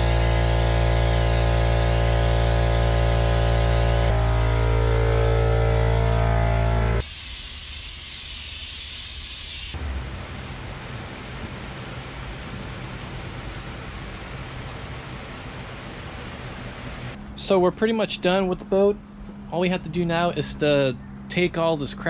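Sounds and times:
motor humming: 0:00.0 - 0:07.0
paint spray gun hissing: 0:00.0 - 0:09.8.

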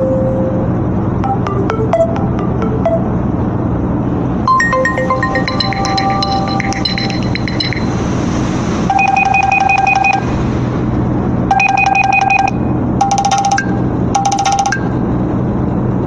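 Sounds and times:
bright phone ringtone: 0:01.2 - 0:03.2, 0:04.5 - 0:08.0, 0:08.9 - 0:10.3, 0:11.5 - 0:15.0
electronic beeping ringtone: 0:01.2 - 0:03.2, 0:04.5 - 0:08.0, 0:08.9 - 0:10.3, 0:11.5 - 0:15.0
phone chiming ringtone: 0:01.2 - 0:03.2, 0:04.5 - 0:08.0, 0:08.9 - 0:10.2, 0:11.5 - 0:15.0.

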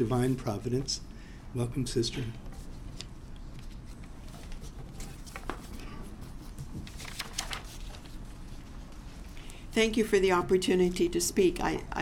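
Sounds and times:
paper rustling: 0:02.5 - 0:09.4.

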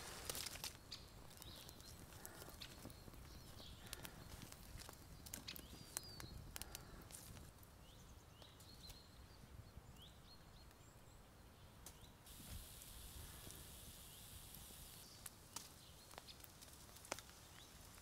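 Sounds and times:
campfire crackling: 0:00.0 - 0:07.8, 0:12.3 - 0:18.0.

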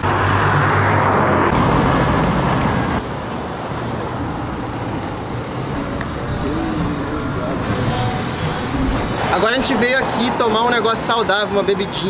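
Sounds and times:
vehicle passing by: 0:00.0 - 0:11.4.

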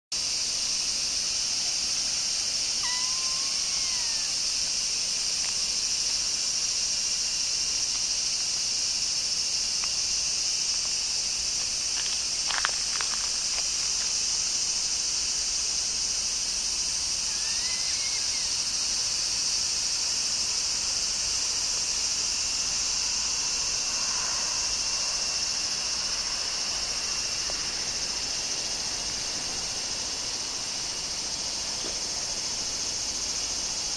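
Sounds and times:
high-pitched insect chorus: 0:00.2 - 0:33.9
kitten mewing: 0:02.8 - 0:04.4, 0:17.2 - 0:18.5.

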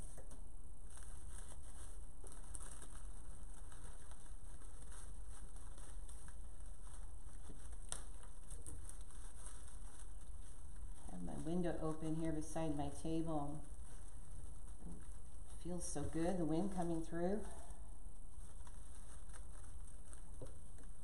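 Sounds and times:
artificial foliage rustling: 0:00.0 - 0:21.0.

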